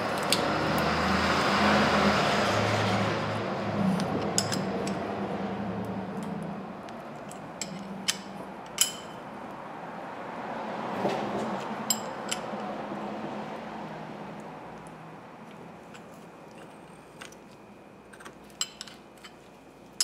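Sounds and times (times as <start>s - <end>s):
metallic clicks and clinks of tools: 4.2s - 5.0s, 7.2s - 9.2s, 11.8s - 12.5s.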